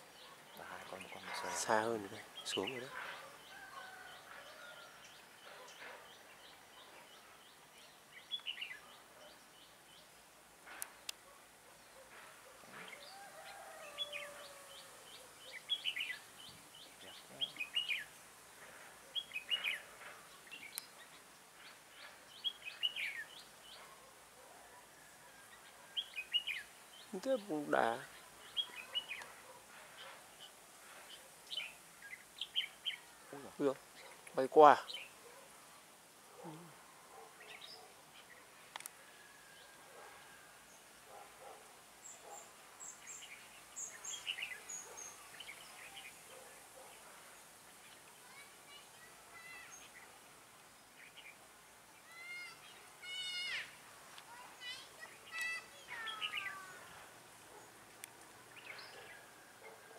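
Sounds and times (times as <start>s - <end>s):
birds chirping and warbling: 0.0s - 59.9s
faint bird calls: 10.7s - 40.5s.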